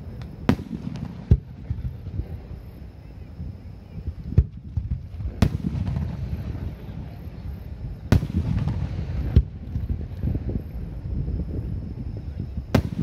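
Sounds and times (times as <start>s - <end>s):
fireworks bursting with rumble: 0.0s - 13.0s.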